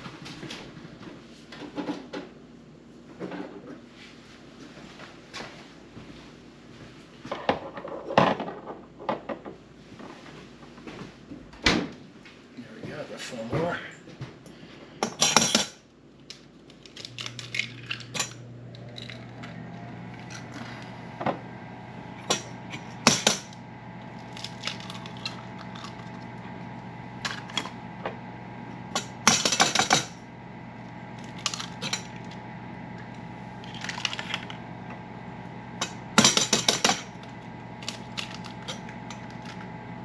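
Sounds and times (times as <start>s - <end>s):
eggs cracking on metal bowl: 16.3s - 19.3s, 22.2s - 26.4s, 33.6s - 34.6s, 35.8s - 39.7s
low hum: 16.8s - 40.0s.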